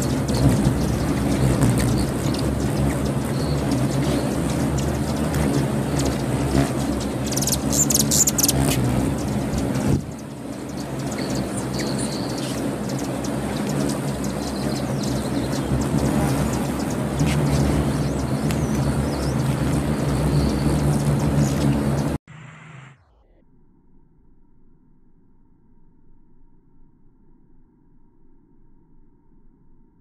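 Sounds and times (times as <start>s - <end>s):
hummingbird wings humming: 0.0s - 22.2s
high sharp bird chirps: 5.9s - 22.2s.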